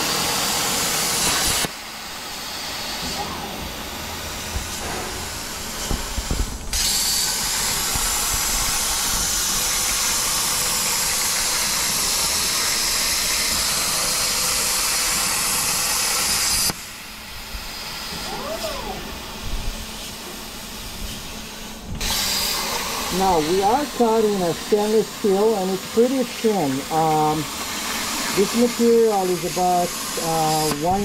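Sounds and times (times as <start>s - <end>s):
plasma arc hissing: 0.0s - 31.0s
plasma torch clicks: 1.2s - 1.8s.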